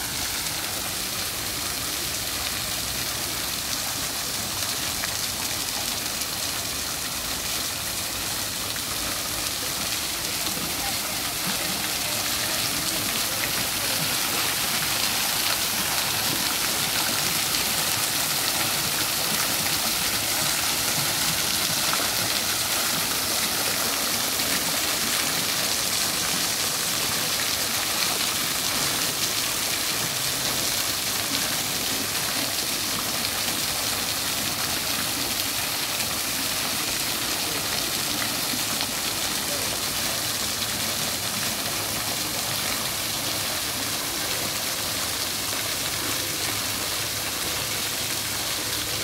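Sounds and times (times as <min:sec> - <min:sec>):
fountain water splashing: 0:00.0 - 0:49.0.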